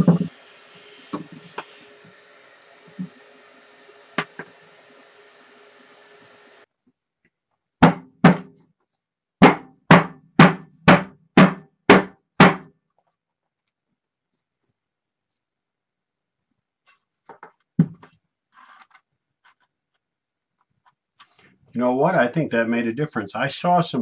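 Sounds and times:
faint steady hiss: 0.0 - 7.0.

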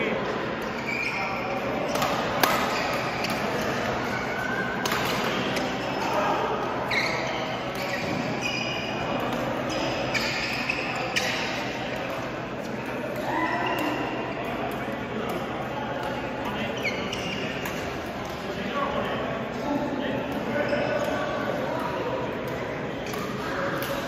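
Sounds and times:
voices: 0.0 - 24.0
shoes squeaking on court: 0.6 - 6.2, 6.8 - 12.8, 16.1 - 18.4, 20.5 - 21.4
rackets striking shuttlecock: 1.8 - 5.8.

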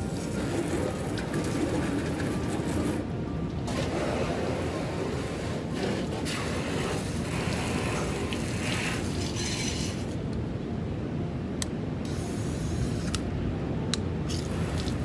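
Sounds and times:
steady low rumble: 0.0 - 15.0
water spraying from hose nozzle: 3.7 - 10.2, 14.3 - 15.0.

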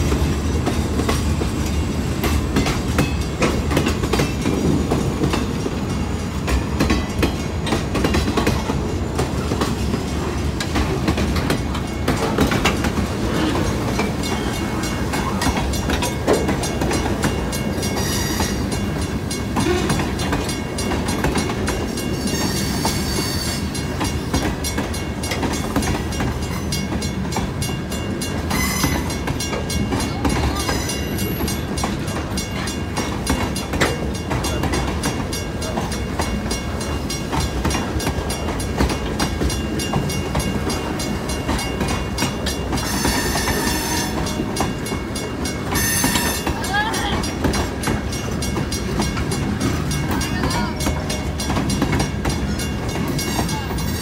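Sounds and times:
freight train wheels rumbling: 0.0 - 54.0
wheels clacking over rail joints: 0.0 - 54.0
high wheel squeals: 17.9 - 18.7, 22.2 - 23.7, 42.8 - 44.3, 45.8 - 46.6.

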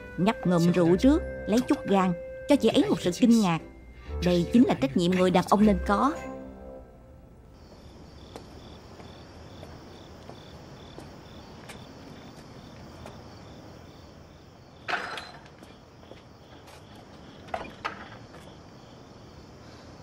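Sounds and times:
crickets chirping: 7.1 - 20.0
high insect trill: 7.6 - 20.0
wooden gate clattering open: 14.8 - 15.7, 17.4 - 18.5.

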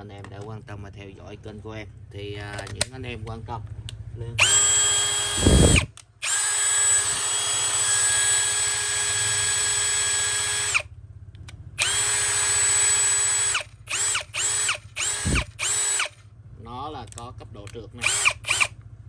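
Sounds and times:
cordless drill motor whine: 4.4 - 10.9, 11.8 - 16.2, 18.0 - 18.8.

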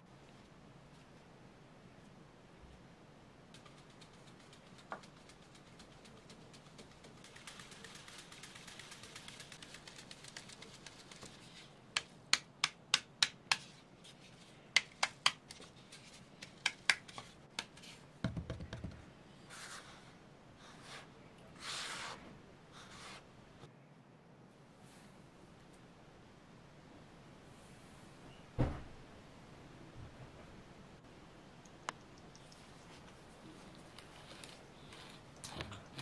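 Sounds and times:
flour hissing through sieve: 20.7 - 23.2
dull thump: 28.6 - 28.9.

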